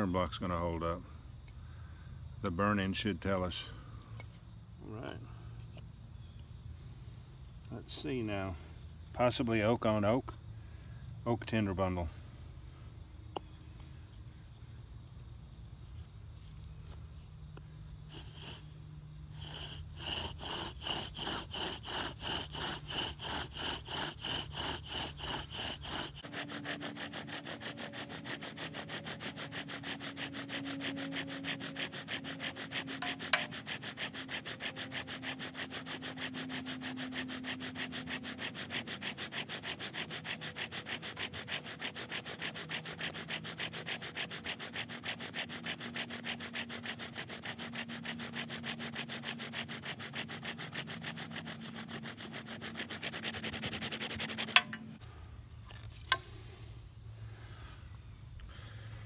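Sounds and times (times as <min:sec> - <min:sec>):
bow drill grinding wood: 0:18.1 - 0:55.0.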